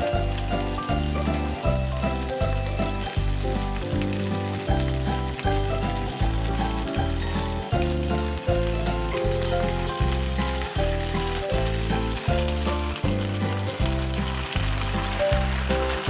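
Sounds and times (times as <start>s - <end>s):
food sizzling in a pan: 0.0s - 16.0s.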